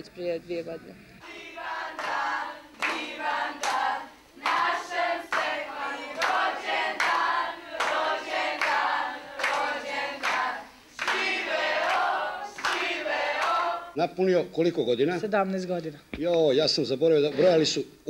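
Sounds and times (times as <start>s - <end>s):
people singing a birthday song: 1.2s - 14.1s
hands clapping in time: 1.9s - 13.7s.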